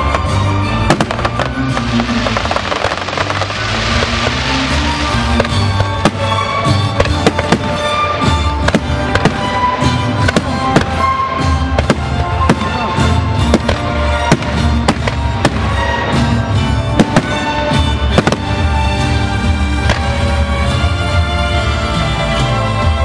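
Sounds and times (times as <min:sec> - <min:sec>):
loud music: 0:00.0 - 0:23.0
firework shells bursting: 0:00.9 - 0:08.0.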